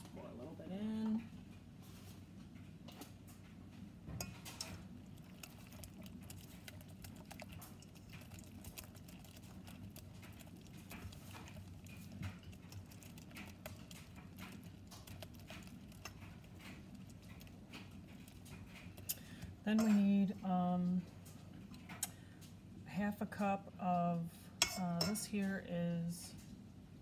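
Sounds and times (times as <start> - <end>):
wet batter squelching: 4.3 - 19.6
whisk tapping metal bowl: 24.6 - 25.3.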